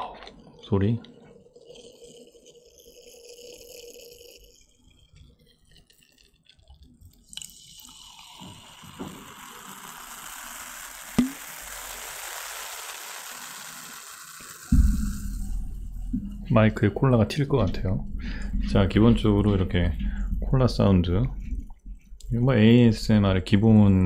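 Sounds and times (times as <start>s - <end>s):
carbonation fizzing and crackling: 0.0s - 23.8s
soda pouring into a mug: 0.4s - 16.3s
sharp tap: 11.2s - 11.4s.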